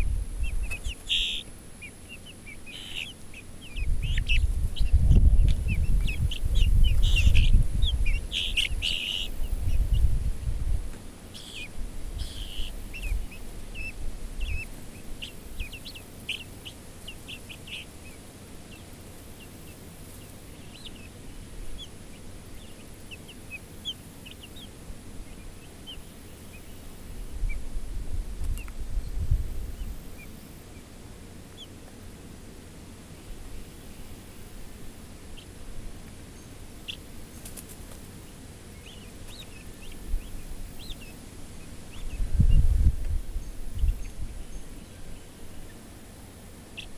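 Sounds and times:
low microphone rumble: 0.0s - 1.2s, 3.6s - 10.9s, 27.1s - 30.0s, 41.9s - 44.7s
young poultry peeping: 0.0s - 46.9s.

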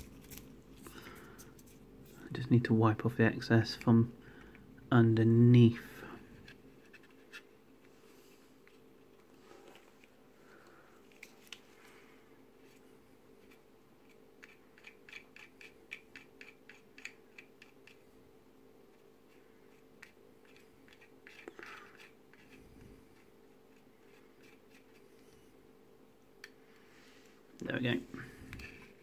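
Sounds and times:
low steady hum: 0.0s - 29.0s
cotton bud scratching plastic: 13.4s - 18.0s, 18.9s - 25.4s.

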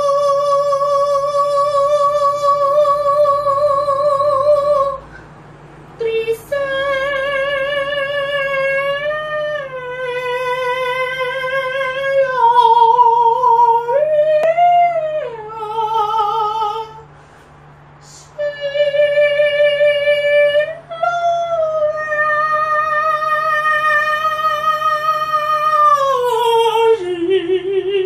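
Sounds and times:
person singing long held notes: 0.0s - 5.2s, 6.0s - 17.1s, 18.0s - 28.0s.

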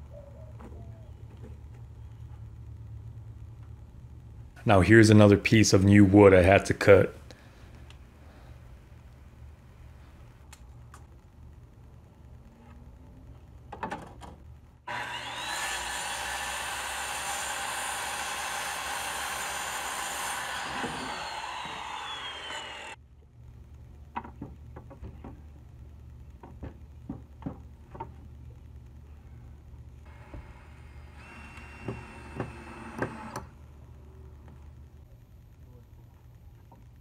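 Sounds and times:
circular saw cutting wood: 14.9s - 23.0s, 30.1s - 33.5s.

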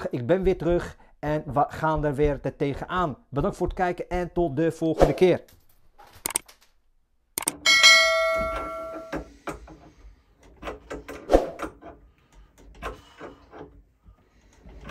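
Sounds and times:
mouse click: 6.2s - 6.4s
soft clicks: 6.2s - 6.6s, 7.4s - 7.6s
bell-like ding: 7.6s - 9.2s.

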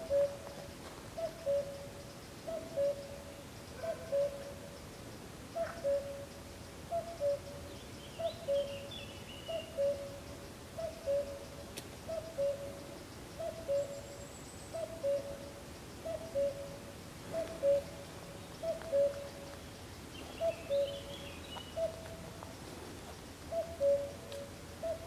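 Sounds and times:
cuckoo calling: 0.0s - 4.8s, 5.5s - 19.6s, 20.2s - 22.4s, 23.5s - 25.0s
small bird chirping: 17.4s - 22.2s.

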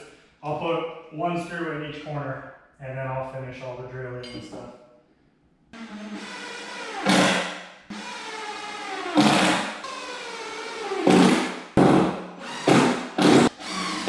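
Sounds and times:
cordless drill bursts: 5.8s - 11.6s, 12.4s - 14.0s.

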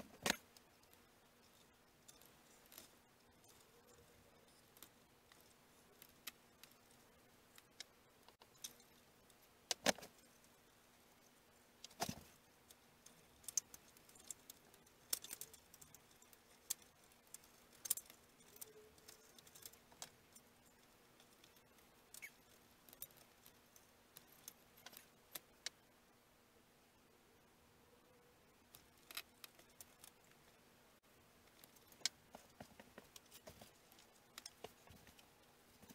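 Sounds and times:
faint steady hum: 0.0s - 35.9s
small clicks and taps of tools: 11.8s - 25.8s, 31.4s - 35.9s.

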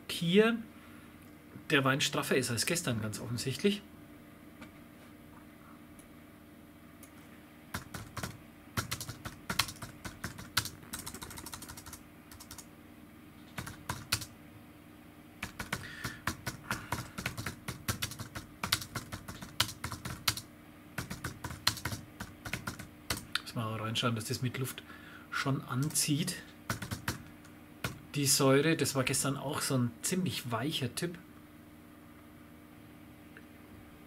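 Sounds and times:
typing on computer keyboard: 7.7s - 12.7s, 13.5s - 14.3s, 15.4s - 23.4s, 26.7s - 28.0s.

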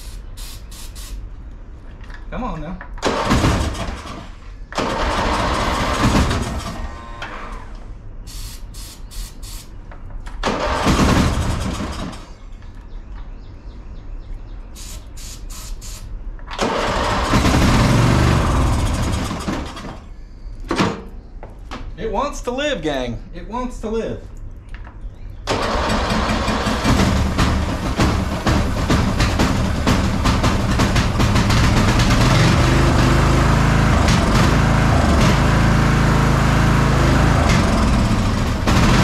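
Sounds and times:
sharp hissing bursts: 0.0s - 1.3s, 8.2s - 9.8s, 14.7s - 16.2s
lawn mower engine cranking and sputtering: 3.0s - 7.6s, 10.2s - 12.3s, 16.4s - 20.0s, 25.5s - 39.0s.

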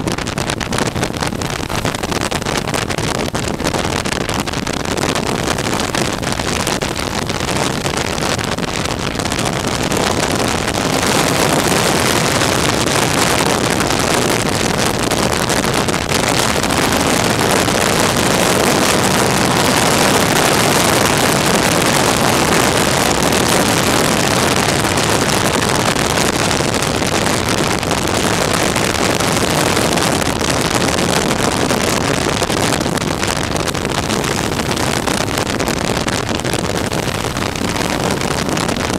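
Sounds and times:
wind on microphone: 0.0s - 38.9s
motorcycle engine: 16.0s - 26.7s.

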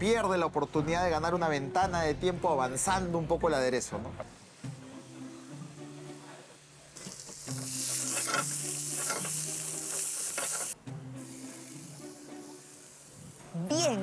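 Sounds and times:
onion sizzling in hot oil: 6.6s - 14.0s
spatula scraping pan: 7.8s - 10.8s.

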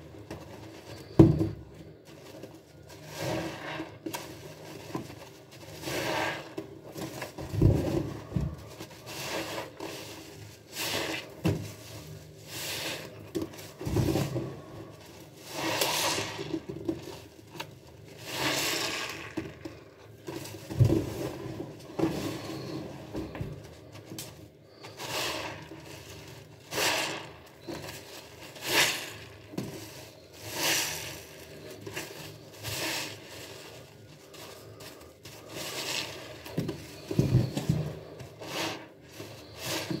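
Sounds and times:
foam sponge squeezed wetly: 5.7s - 6.6s, 9.0s - 13.1s.

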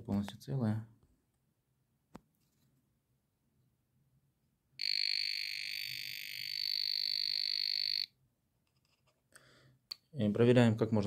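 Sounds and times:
voltage tester high-pitched beep: 4.8s - 8.2s.

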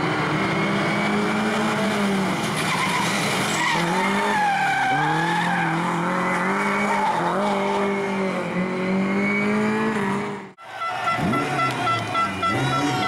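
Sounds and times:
rally car engine revving: 0.0s - 13.0s
tyre squeal: 2.6s - 6.0s.

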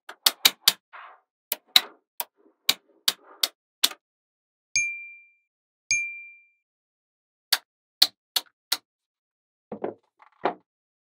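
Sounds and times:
short ringing ding: 4.8s - 6.6s
soft knocks: 9.7s - 10.6s.

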